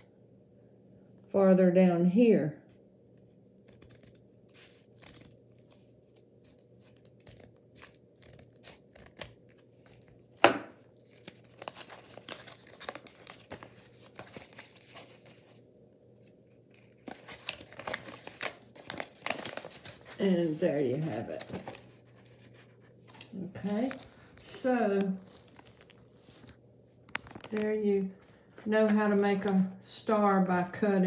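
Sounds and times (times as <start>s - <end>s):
scissors snipping paper: 3.6s - 15.4s, 16.7s - 21.8s
paper rustling and crinkling: 3.6s - 15.6s, 16.2s - 29.8s.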